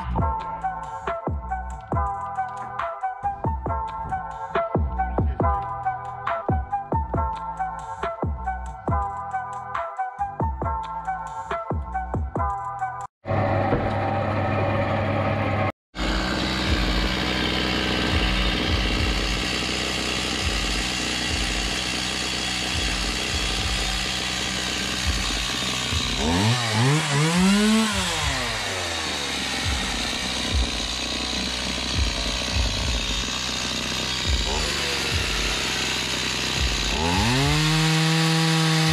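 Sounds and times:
circular saw humming: 13.3s - 38.9s
chainsaw engine revving: 16.0s - 38.9s.

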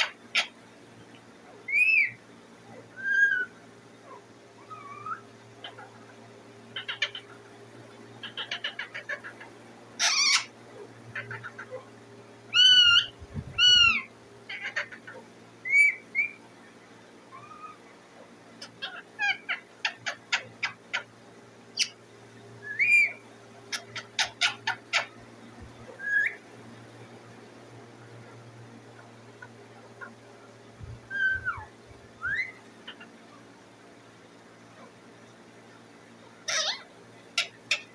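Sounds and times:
parakeet squawking and chirping: 0.0s - 0.6s, 1.6s - 2.2s, 2.9s - 7.4s, 8.1s - 11.8s, 12.5s - 16.4s, 17.3s - 17.9s, 18.6s - 22.0s, 22.6s - 25.2s, 25.9s - 26.4s, 30.9s - 33.5s, 36.4s - 37.9s
faint steady hum: 0.0s - 37.9s.

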